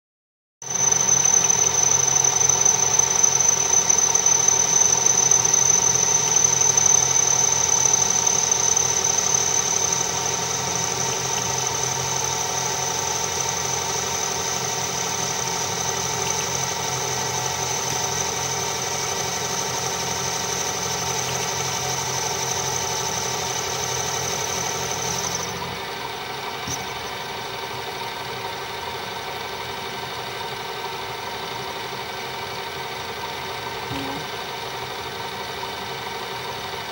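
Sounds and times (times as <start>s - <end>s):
high whine from cutting tool: 0.6s - 28.5s
metal lathe running: 0.7s - 28.2s.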